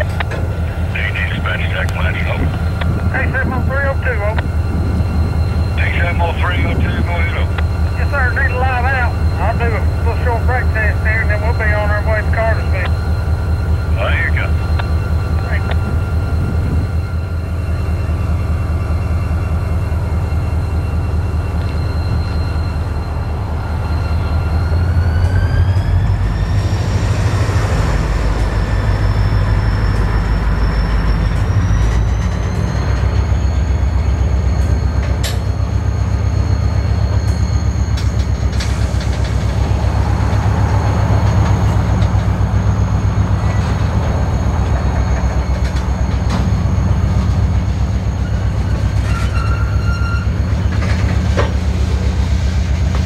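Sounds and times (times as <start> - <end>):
train wheels rumbling on rail: 0.0 - 53.0
high-pitched wheel squeal: 14.6 - 38.8, 39.6 - 51.1.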